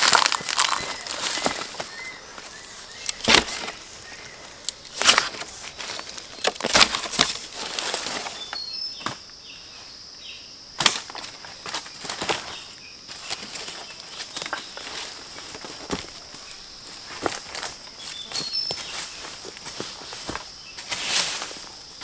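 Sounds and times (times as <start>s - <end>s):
hand tool chopping bamboo: 0.0s - 1.9s, 3.0s - 3.8s, 4.7s - 5.5s, 6.4s - 7.8s
faint bird chirps: 0.3s - 3.2s, 8.3s - 10.5s, 18.0s - 19.4s.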